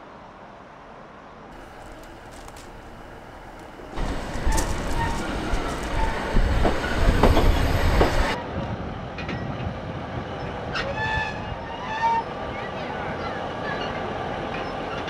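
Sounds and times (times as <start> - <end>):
diesel train engine running: 1.6 - 8.4
train brakes squealing: 1.6 - 8.4, 10.4 - 15.0
train wheels clicking: 1.6 - 8.4.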